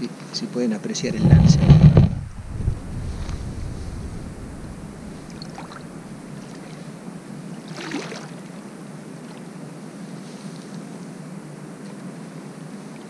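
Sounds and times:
shallow water sloshing: 0:01.0 - 0:06.9
soft water splashes: 0:02.3 - 0:08.6.

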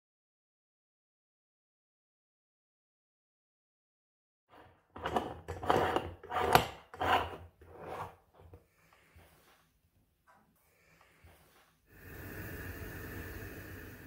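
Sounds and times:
metal threads rasping: 0:04.5 - 0:08.6.

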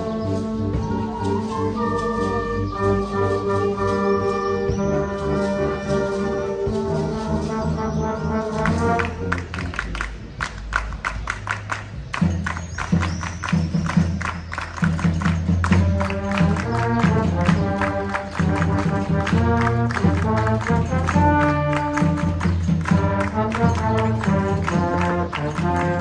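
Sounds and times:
percussion strokes: 0:00.0 - 0:26.0
wind band sustained chords: 0:00.0 - 0:26.0.

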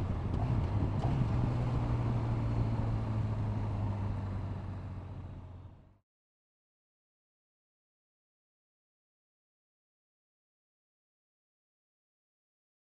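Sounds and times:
wind and road noise: 0:00.0 - 0:06.0.

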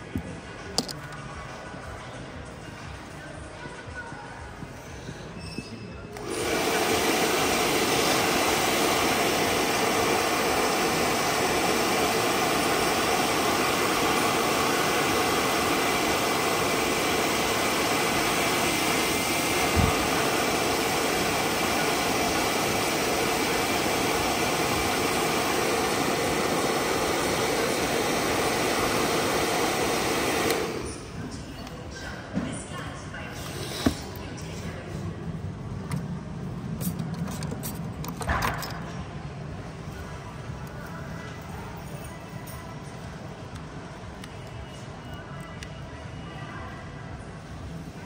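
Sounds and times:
air blower whooshing: 0:06.2 - 0:31.1.

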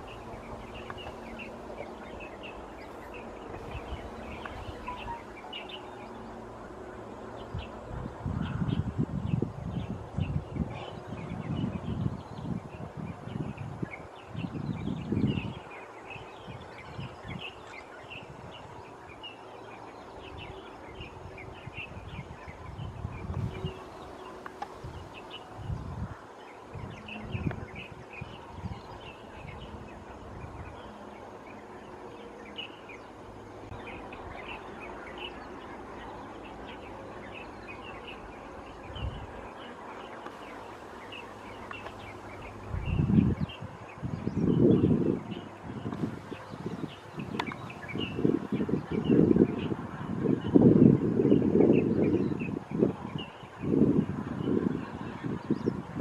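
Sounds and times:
high bird chirps: 0:00.0 - 0:06.3
outdoor hiss: 0:00.0 - 0:07.2, 0:23.3 - 0:27.0, 0:32.8 - 0:43.6.

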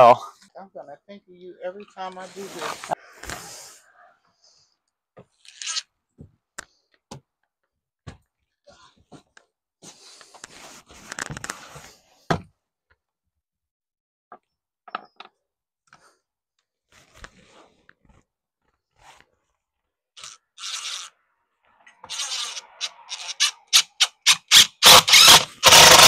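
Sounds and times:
shuffling: 0:01.7 - 0:03.0.

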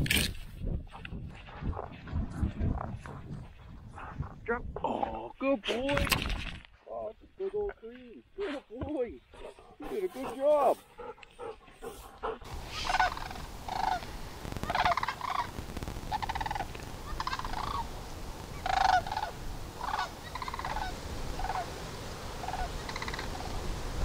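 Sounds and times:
cranes calling: 0:11.0 - 0:23.8.

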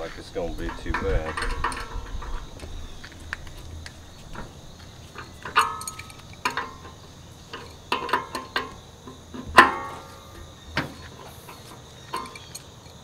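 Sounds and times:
wrench striking metal hub: 0:05.2 - 0:08.8.

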